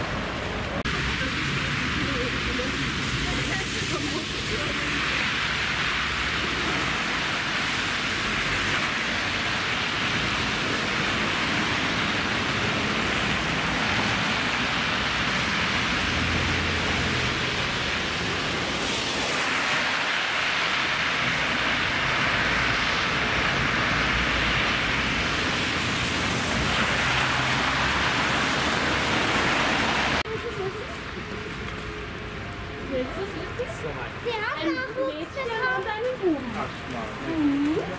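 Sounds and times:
tyres hissing on wet slush: 0.9s - 30.3s.

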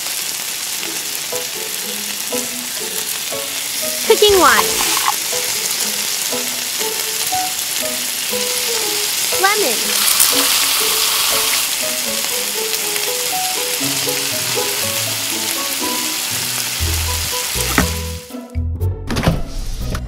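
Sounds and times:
squid sizzling in hot oil: 0.0s - 18.3s.

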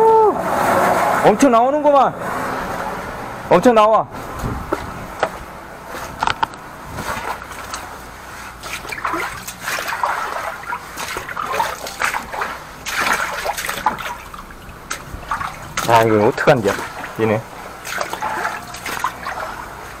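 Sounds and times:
water gushing and splashing: 5.9s - 20.0s.

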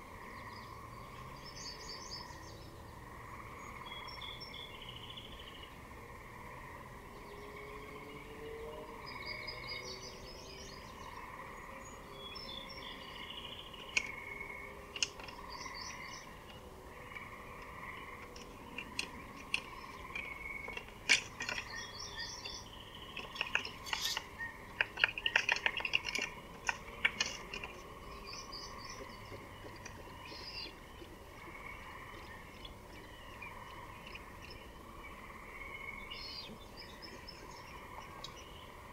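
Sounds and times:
pulsing background drone: 0.0s - 38.9s
songbirds chirping: 0.0s - 38.9s
sharp clicks and snaps: 14.9s - 16.6s, 17.6s - 28.3s.

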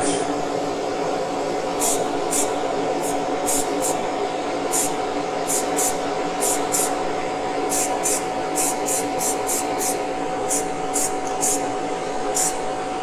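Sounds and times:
steady motor hum: 0.0s - 13.0s
spray paint can hissing: 1.8s - 4.0s, 4.7s - 7.0s, 7.7s - 11.7s, 12.3s - 12.6s.

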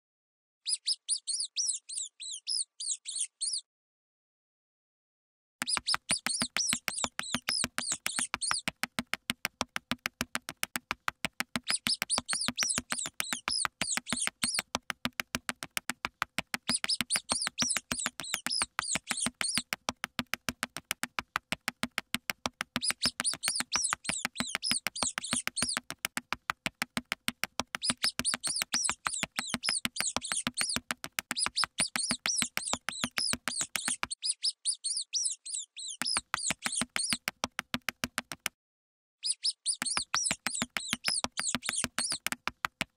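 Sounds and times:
mouse squeaking: 0.7s - 3.6s, 5.6s - 8.9s, 11.6s - 14.8s, 16.6s - 19.8s, 22.8s - 26.0s, 27.7s - 37.3s, 39.2s - 42.4s
fast clicking patter: 5.6s - 34.1s, 36.0s - 38.5s, 39.8s - 42.9s.

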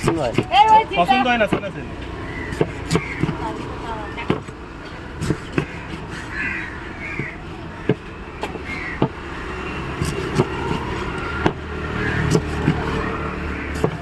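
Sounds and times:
knife chopping on wooden board: 0.0s - 0.5s, 1.4s - 1.7s, 2.4s - 4.6s, 5.2s - 6.1s, 7.1s - 9.2s, 9.9s - 13.1s, 13.7s - 14.0s
road traffic rumble: 0.0s - 14.0s.

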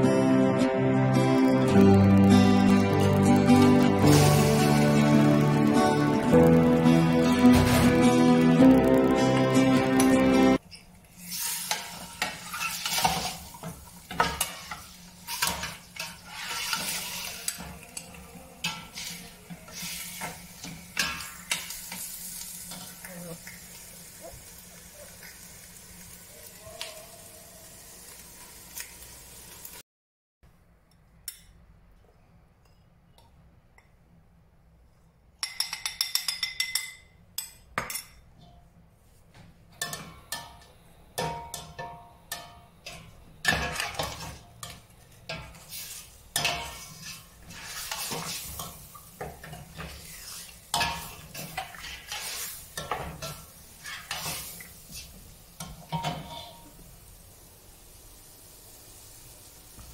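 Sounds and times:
meat sizzling in oil: 3.1s - 10.0s, 11.1s - 17.6s, 18.7s - 29.8s, 43.5s - 59.9s.

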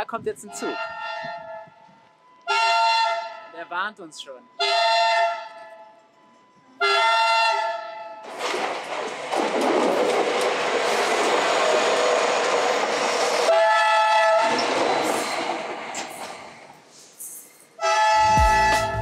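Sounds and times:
train horn blast: 0.6s - 1.9s, 2.5s - 3.6s, 4.6s - 6.0s, 6.8s - 8.2s, 13.5s - 14.5s, 17.8s - 19.0s
train wheels on rails: 8.2s - 13.6s, 14.2s - 17.8s.

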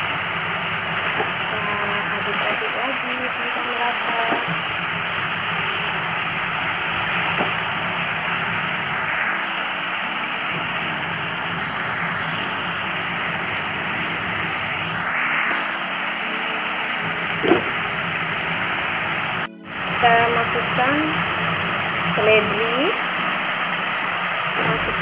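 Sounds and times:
vegetables sizzling in a wok: 0.0s - 25.0s.

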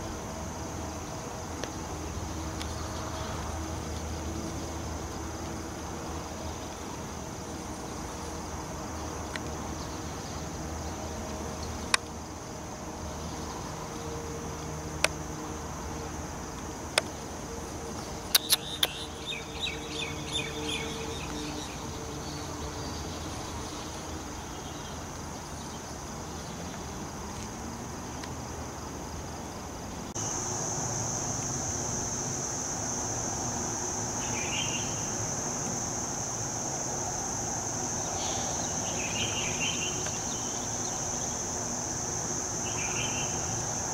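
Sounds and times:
high-pitched insect drone: 0.0s - 27.2s, 30.2s - 43.9s
sharp clicks: 18.3s - 19.0s
chirps: 18.3s - 21.8s.

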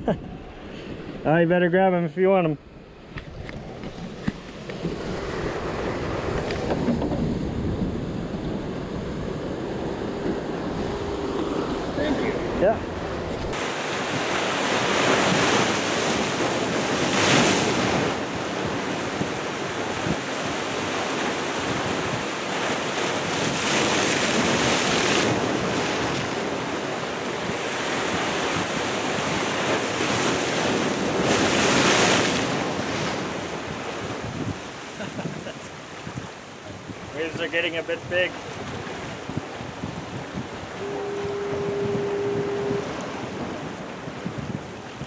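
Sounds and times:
surf breaking against rocks: 13.2s - 45.0s.

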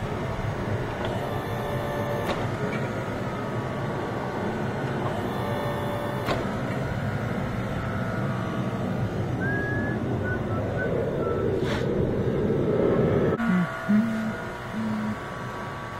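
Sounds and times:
hydraulic press motor running: 0.2s - 4.2s, 4.8s - 7.8s.

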